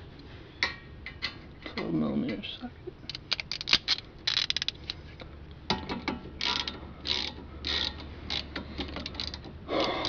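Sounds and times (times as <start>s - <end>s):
hand ratchet clicking: 3.1s - 5.0s, 6.4s - 10.0s.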